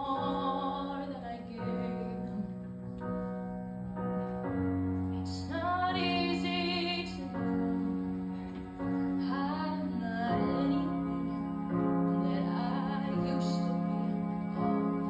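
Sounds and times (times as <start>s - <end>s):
girl singing into a microphone: 0.0s - 2.7s, 5.2s - 8.0s, 9.1s - 15.0s.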